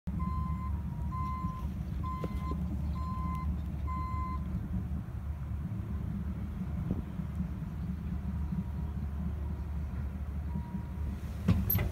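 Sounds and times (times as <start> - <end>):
low diesel rumble: 0.1 - 11.9
backup alarm beeping: 0.2 - 4.4.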